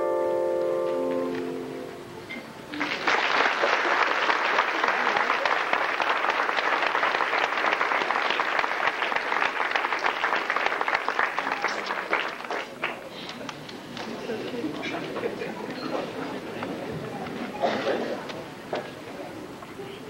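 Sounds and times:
audience applauding: 0:02.7 - 0:15.2.

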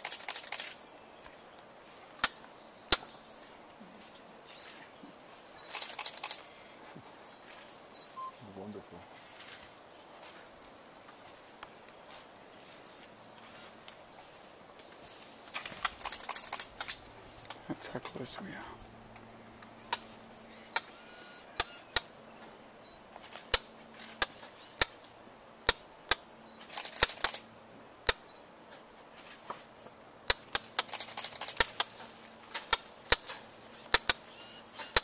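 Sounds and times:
camera shutters clicking: 0:00.0 - 0:00.8, 0:05.6 - 0:06.5, 0:15.6 - 0:17.0, 0:26.6 - 0:27.4, 0:30.3 - 0:31.9.

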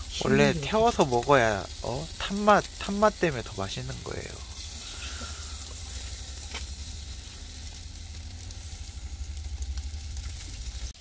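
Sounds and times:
fish sizzling on a grill: 0:00.0 - 0:11.0
low rumble: 0:03.3 - 0:10.9.

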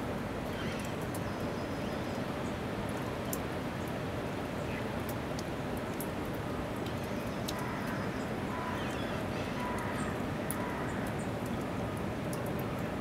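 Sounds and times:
outdoor background rush: 0:00.0 - 0:13.0
light ticks: 0:00.4 - 0:01.4, 0:02.9 - 0:04.0, 0:05.0 - 0:08.0, 0:09.6 - 0:12.9.

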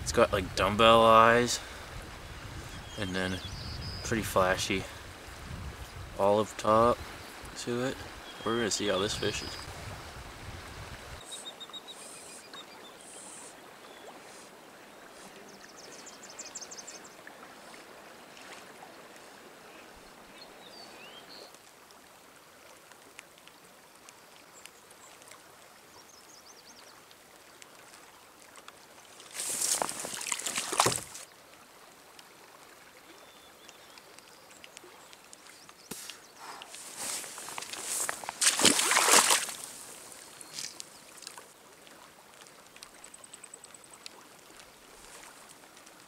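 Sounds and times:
water current rushing: 0:29.1 - 0:31.3, 0:35.6 - 0:41.5.

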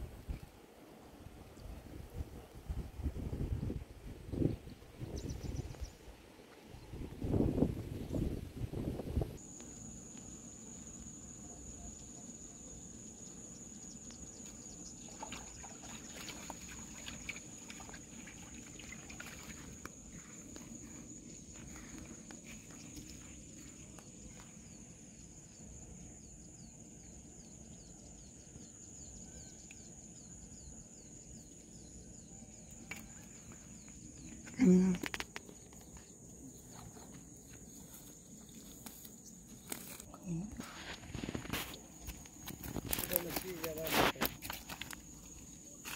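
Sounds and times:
low wind rumble: 0:00.0 - 0:09.4
high-pitched insect trill: 0:09.4 - 0:45.9.

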